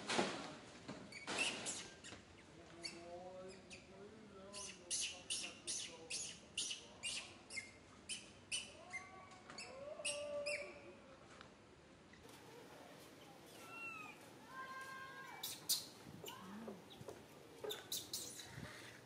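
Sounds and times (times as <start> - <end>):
infant monkey crying: 4.6 - 10.8, 13.5 - 14.2, 15.2 - 17.0.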